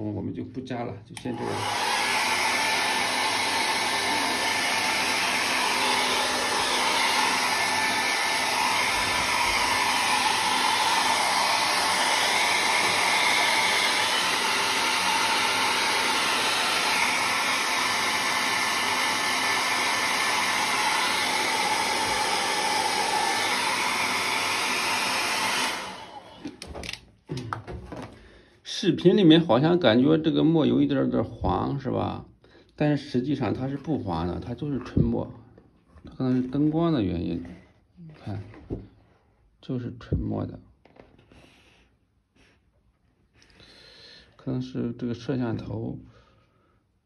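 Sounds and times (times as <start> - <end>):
electric hair dryer running: 1.2 - 27.0.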